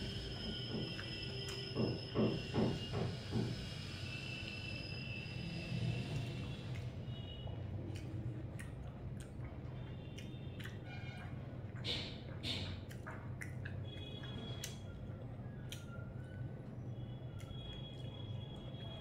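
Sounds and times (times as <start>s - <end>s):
chewing: 6.1s - 19.0s.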